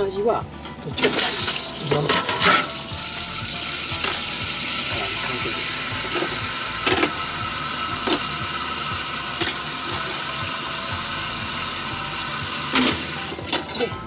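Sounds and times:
tap running into sink: 0:05.9 - 0:07.2, 0:09.3 - 0:13.7.

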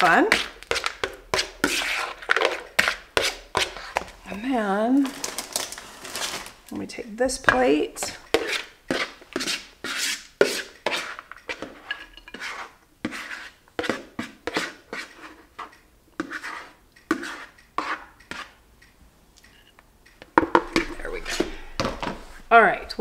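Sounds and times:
spoon scraping plastic bowl: 0:00.0 - 0:04.5, 0:07.4 - 0:18.6.

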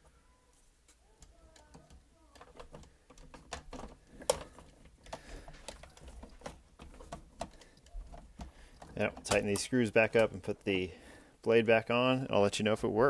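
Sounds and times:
hard plastic parts clicking: 0:00.8 - 0:10.6.

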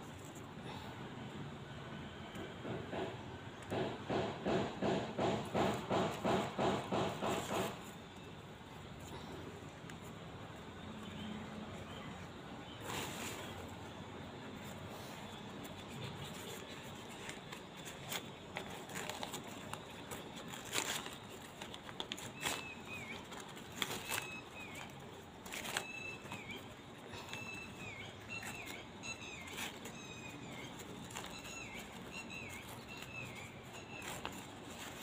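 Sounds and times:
newspaper crinkling and crackling: 0:05.5 - 0:35.0
small bird chirping: 0:18.6 - 0:35.0.

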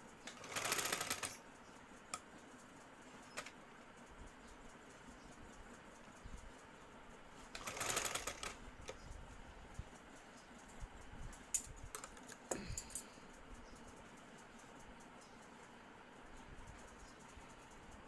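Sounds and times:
sewing machine clicking: 0:00.2 - 0:01.4, 0:07.5 - 0:09.0.

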